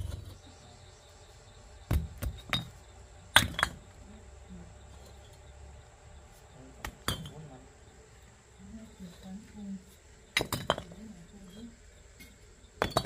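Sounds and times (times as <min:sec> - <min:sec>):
hard objects clinking and knocking: 0:10.3 - 0:11.0, 0:12.2 - 0:13.0.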